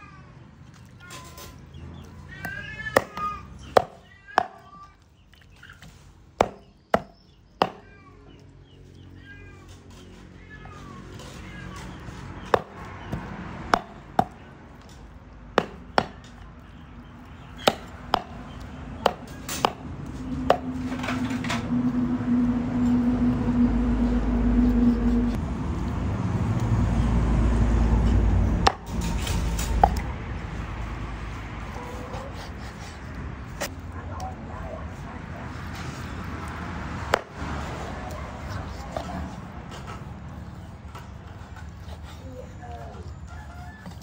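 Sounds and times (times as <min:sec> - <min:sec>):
knife chopping meat on wooden board: 0:02.5 - 0:04.6, 0:06.4 - 0:07.8, 0:12.4 - 0:14.4, 0:15.6 - 0:16.4, 0:17.6 - 0:19.8
low rumble: 0:19.9 - 0:31.6.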